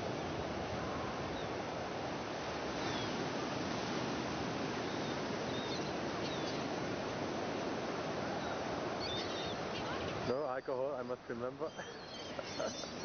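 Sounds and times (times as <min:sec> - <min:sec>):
ocean surf breaking on beach: 0:00.0 - 0:13.0
faint high bird calls: 0:05.5 - 0:06.7, 0:08.4 - 0:10.3, 0:11.6 - 0:13.0.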